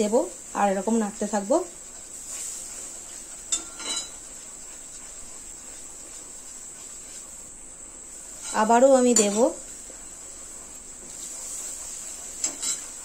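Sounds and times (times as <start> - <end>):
rustle and stirring: 0.0 - 13.0.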